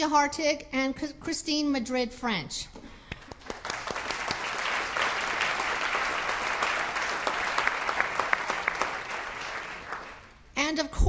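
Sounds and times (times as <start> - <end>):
audience applauding: 3.2 - 10.4.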